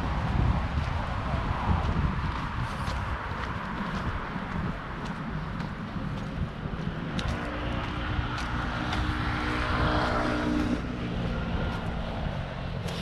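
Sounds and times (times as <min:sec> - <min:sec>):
footsteps on pavement: 0:00.0 - 0:13.0
aircraft engine passing overhead: 0:05.2 - 0:13.0.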